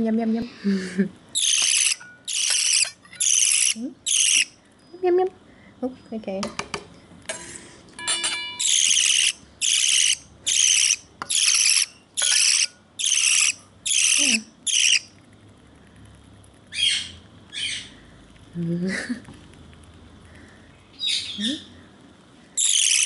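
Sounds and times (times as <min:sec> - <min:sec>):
bird chick begging calls: 0:01.4 - 0:04.5, 0:08.6 - 0:15.1, 0:22.6 - 0:23.0.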